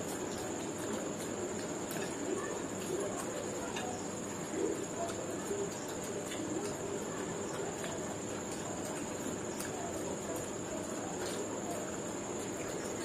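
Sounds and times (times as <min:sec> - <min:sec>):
people chewing food: 0:00.0 - 0:13.0.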